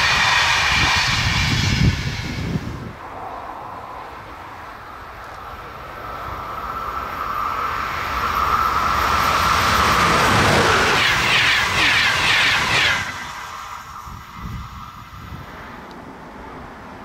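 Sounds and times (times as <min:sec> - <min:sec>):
train approaching with whine: 0:00.0 - 0:17.0.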